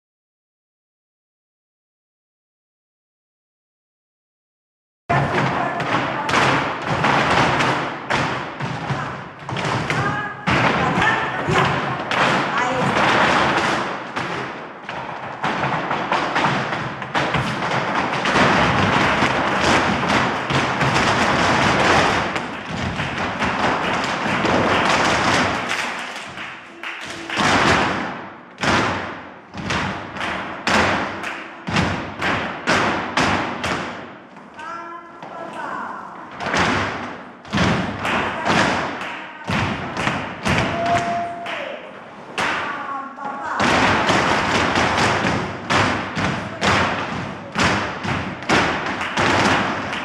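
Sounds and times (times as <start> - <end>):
shoes stamping on wooden floor: 5.1 - 25.6
flamenco music: 5.1 - 50.0.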